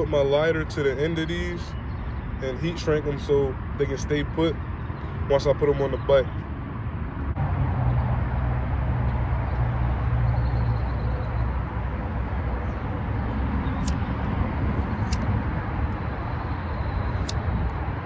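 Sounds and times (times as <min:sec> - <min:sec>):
wind buffeting microphone: 0:11.7 - 0:18.0.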